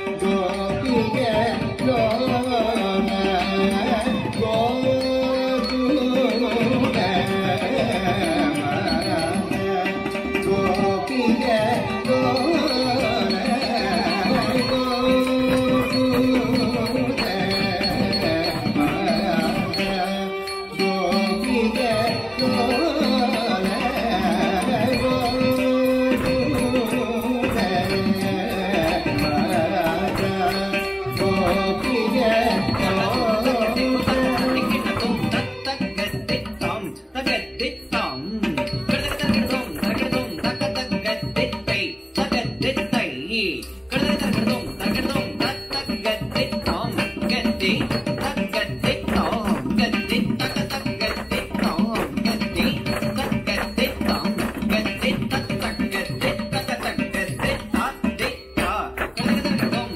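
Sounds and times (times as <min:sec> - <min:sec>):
person singing: 0:00.0 - 0:42.8.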